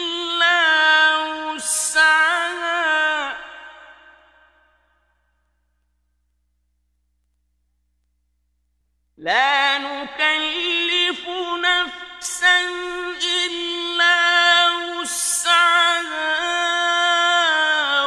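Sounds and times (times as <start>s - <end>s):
man reciting melodically: 0.0s - 3.9s, 9.2s - 18.0s.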